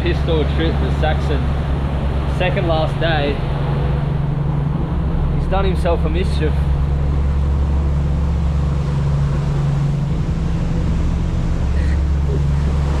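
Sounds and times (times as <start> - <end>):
motorboat engine droning: 0.0 - 13.0
rush of wind and water: 0.0 - 13.0.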